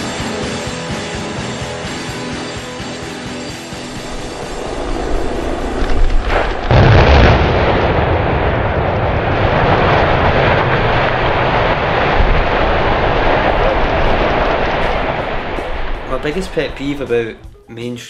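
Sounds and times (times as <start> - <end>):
music: 0.0 - 6.1, 15.7 - 18.0
building collapse rumble: 4.1 - 17.3
demolition charges blast: 4.3 - 17.0.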